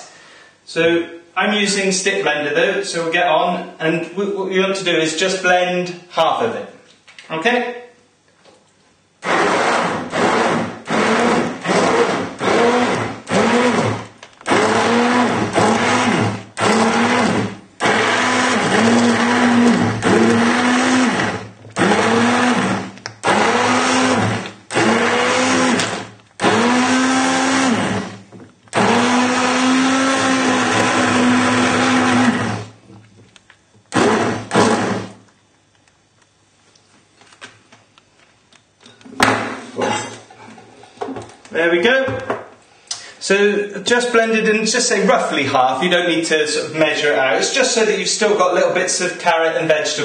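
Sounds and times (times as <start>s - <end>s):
stick blender motor: 9.2s - 32.8s, 33.9s - 35.2s.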